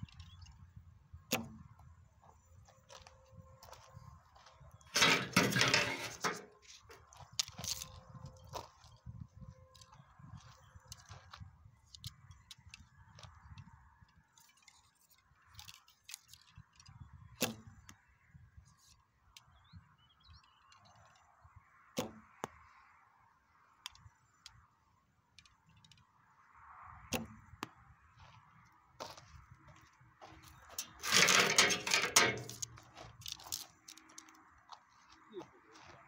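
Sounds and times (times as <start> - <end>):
wind rumble on microphone: 0.0 - 5.6, 6.8 - 14.8, 16.4 - 18.8.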